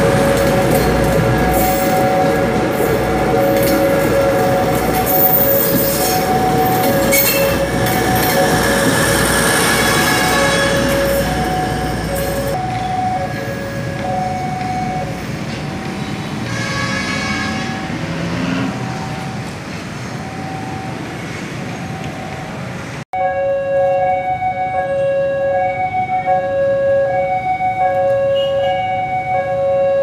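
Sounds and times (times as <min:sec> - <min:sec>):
level crossing two-tone alarm: 0:00.0 - 0:16.3, 0:23.2 - 0:30.0
train rumbling past: 0:00.0 - 0:23.0.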